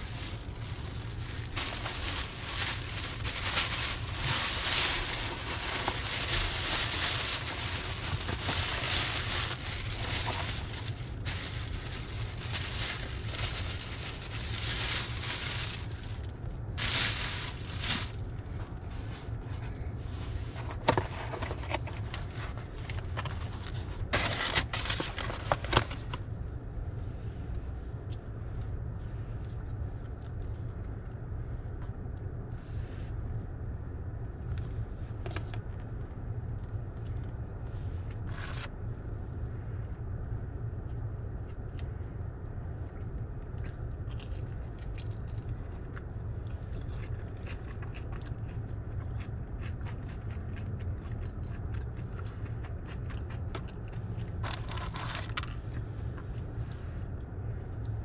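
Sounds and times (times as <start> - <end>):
plastic bag and paper crinkling: 0.0 - 19.1, 20.6 - 26.2, 38.2 - 38.7, 44.1 - 45.6, 54.4 - 55.8
steady low hum: 0.0 - 58.0.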